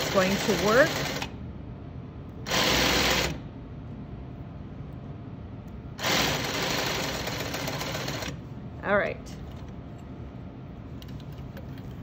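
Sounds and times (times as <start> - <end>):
industrial sewing machine stitching: 0.0 - 1.3, 2.5 - 3.4, 6.0 - 8.4.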